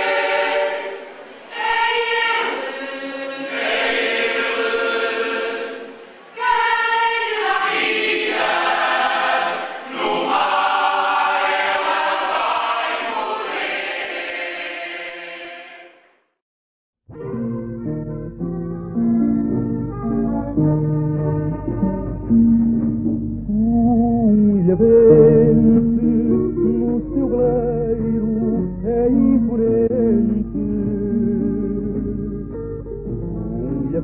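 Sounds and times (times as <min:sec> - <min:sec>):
choir singing: 0:00.0 - 0:16.2.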